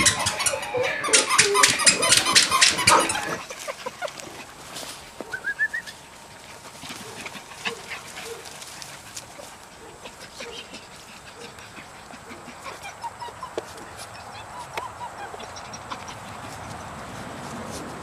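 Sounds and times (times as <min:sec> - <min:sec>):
puppies yipping: 0:00.0 - 0:17.2
scuffling on grass: 0:03.4 - 0:12.9, 0:16.0 - 0:18.0.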